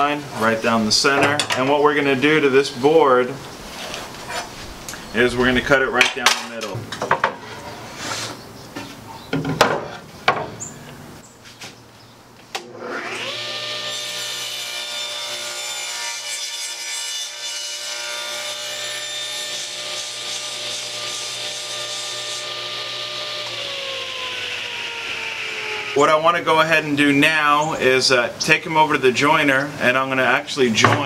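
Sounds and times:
table saw motor running: 12.6s - 16.0s, 18.2s - 26.4s
saw blade cutting wood: 12.6s - 26.5s.

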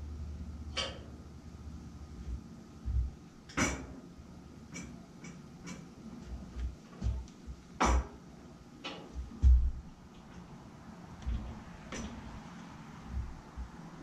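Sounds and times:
light taps and dull bumps: 2.2s - 3.8s, 6.2s - 8.2s, 8.9s - 10.4s, 13.0s - 14.0s.

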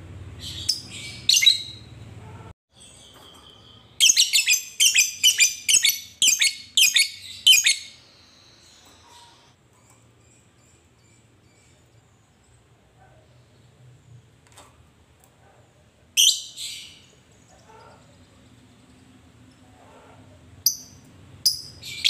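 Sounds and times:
shrill bird calls: 0.4s - 1.9s, 2.7s - 9.5s
bird chirping: 0.4s - 2.0s, 2.7s - 14.2s, 16.2s - 19.3s, 20.6s - 22.0s.

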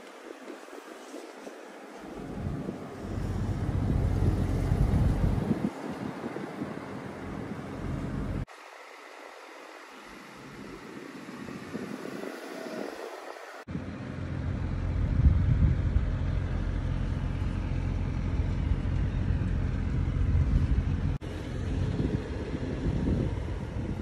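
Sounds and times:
hiss: 8.5s - 13.7s.

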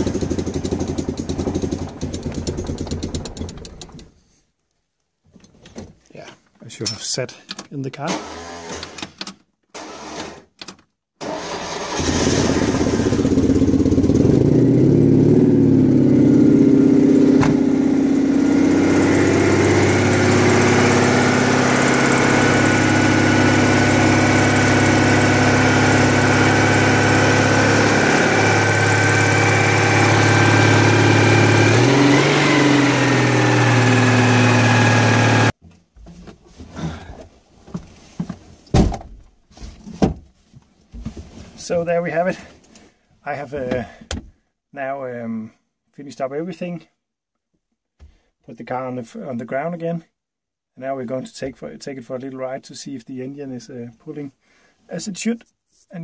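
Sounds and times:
starter motor cranking: 0.0s - 4.2s
car engine running and revving: 12.0s - 35.6s.

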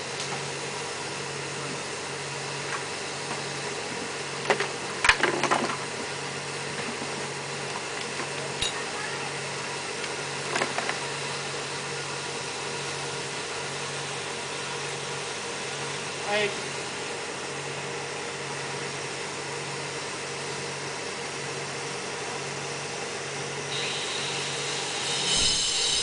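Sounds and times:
machine humming: 23.6s - 26.0s.

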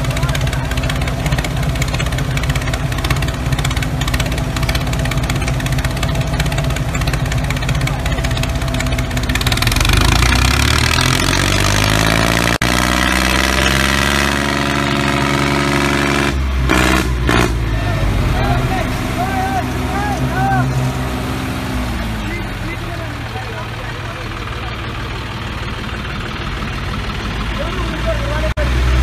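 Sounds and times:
tractor engine idling and revving: 0.0s - 29.0s.

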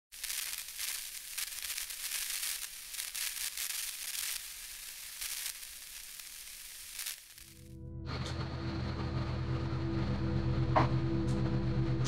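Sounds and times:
glitchy static hiss: 0.0s - 7.7s.

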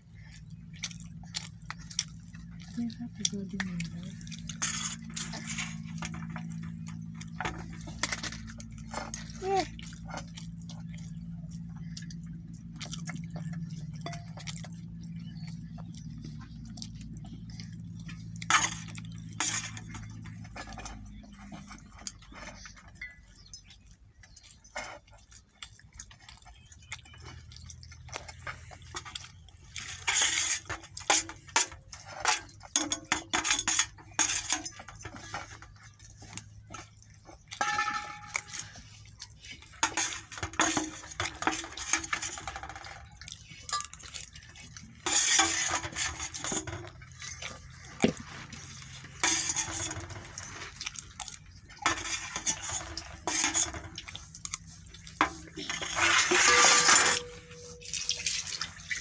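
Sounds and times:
low steady hum: 0.0s - 59.0s
clinks from steel food bowl: 37.6s - 38.8s, 55.2s - 59.0s.

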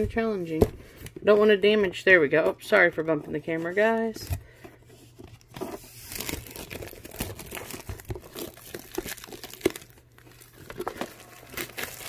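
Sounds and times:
plastic shrink wrap crinkling: 5.6s - 12.0s.

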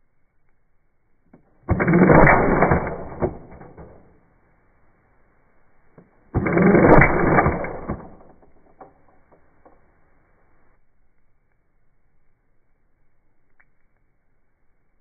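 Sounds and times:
airsoft gun full auto bursts: 1.6s - 4.2s, 6.3s - 8.9s.

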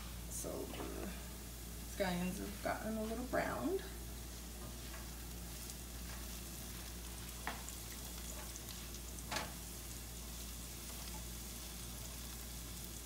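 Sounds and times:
scallions sizzling in hot oil: 0.0s - 13.0s
utensil stirring in skillet: 2.7s - 13.0s.

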